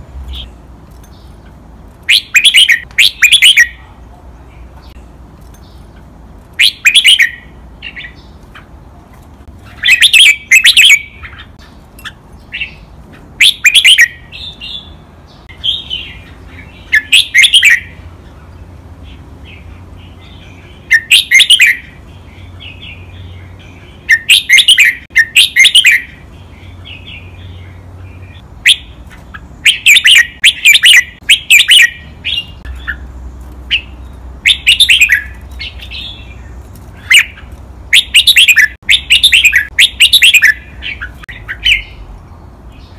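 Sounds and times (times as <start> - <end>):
bird singing sharp phrases: 0.2 - 42.9
bird chattering notes: 5.7 - 8.7, 9.7 - 18.0, 28.7 - 33.1, 33.7 - 42.0.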